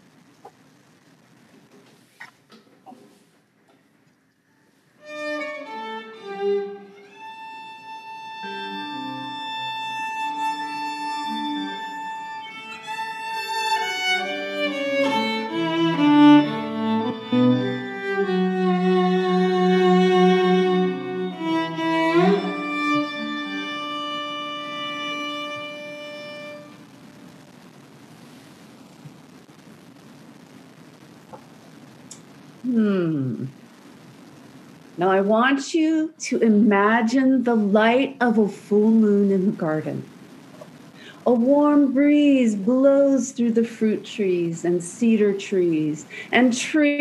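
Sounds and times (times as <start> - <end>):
solo violin melody: 5.0 - 26.8.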